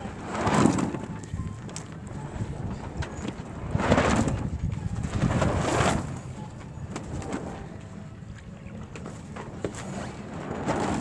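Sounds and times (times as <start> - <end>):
rushing wind: 0.0 - 6.4
low buffeting rumble: 0.0 - 11.0.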